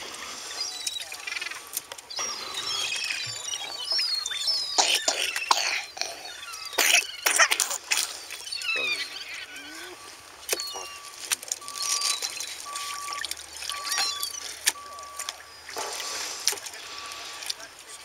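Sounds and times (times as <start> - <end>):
water sloshing and dripping in tub: 0.0 - 17.9
clicks of fish and plastic: 10.5 - 16.8.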